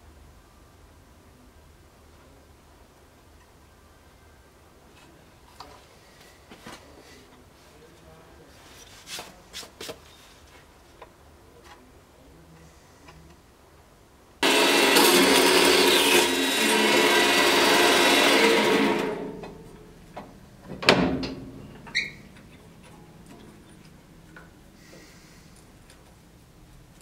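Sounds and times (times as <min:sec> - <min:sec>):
power saw cutting metal rod: 0:14.4 - 0:19.9.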